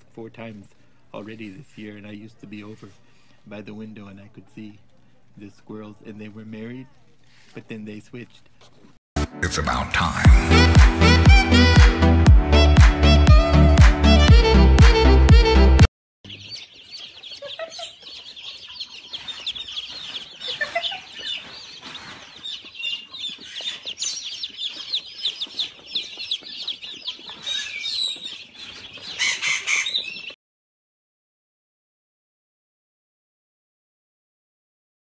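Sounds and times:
baby chicks peeping: 0:00.2 - 0:08.8, 0:16.2 - 0:30.4.

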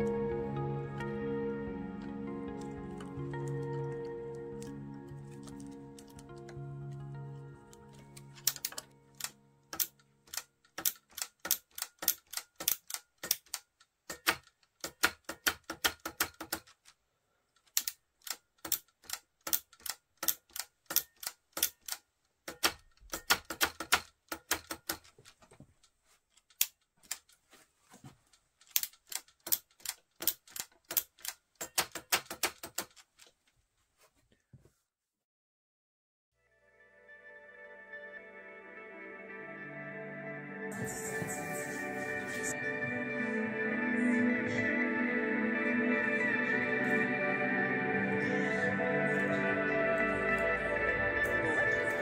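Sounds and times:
sharp mechanical clicks: 0:08.4 - 0:17.0, 0:17.6 - 0:25.2, 0:28.6 - 0:33.1.

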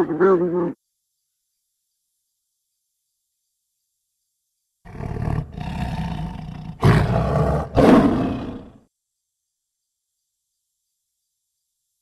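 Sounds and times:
tiger growling and roaring: 0:04.9 - 0:08.8.

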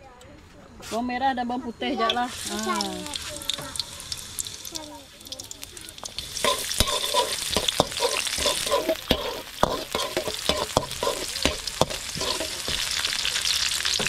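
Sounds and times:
shallots sizzling in hot oil: 0:02.0 - 0:14.0
metal spatula clacking against wok: 0:06.0 - 0:12.9.

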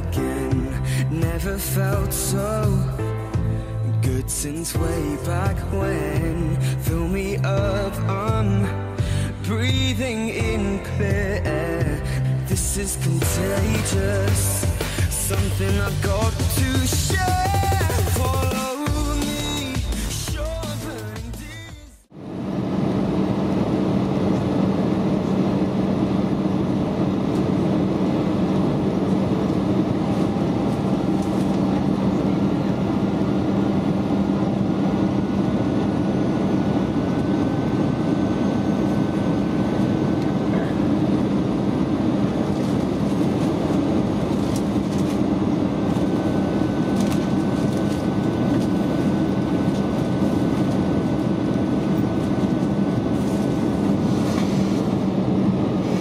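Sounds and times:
airflow and jet engine rushing: 0:22.0 - 0:56.0
low engine hum: 0:22.1 - 0:56.0
faint high whine: 0:22.2 - 0:56.0.

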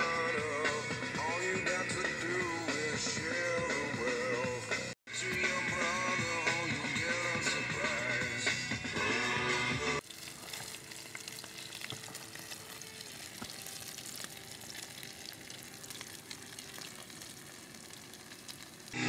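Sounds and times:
loud music: 0:00.0 - 0:10.0
food sizzling in hot oil: 0:10.0 - 0:19.0.

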